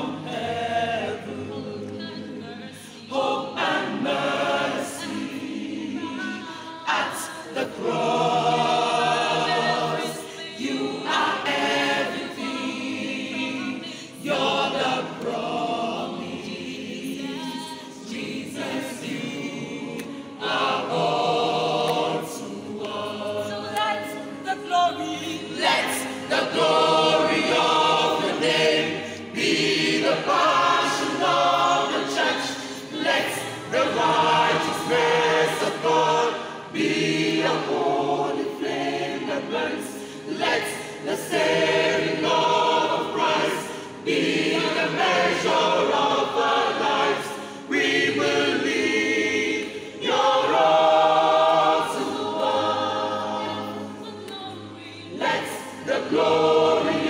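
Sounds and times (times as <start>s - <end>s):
church choir singing: 0.0s - 57.0s.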